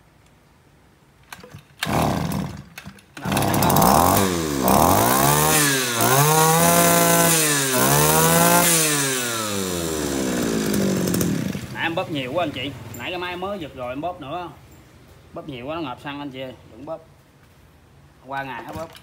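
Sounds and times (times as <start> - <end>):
recoil starter pulls: 1.2 - 11.9
brush cutter engine revving: 1.4 - 13.1.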